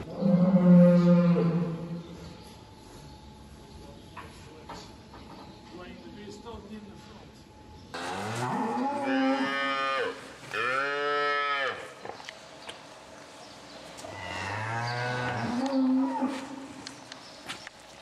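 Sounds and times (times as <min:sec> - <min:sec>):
cow mooing: 0:00.1 - 0:02.0, 0:08.0 - 0:11.9, 0:14.1 - 0:16.5.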